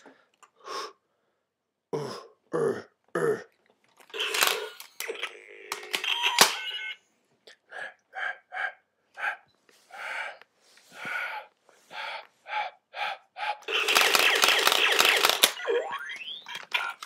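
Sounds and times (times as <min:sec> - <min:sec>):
toy gun zaps: 0:04.1 - 0:06.7, 0:13.7 - 0:17.0.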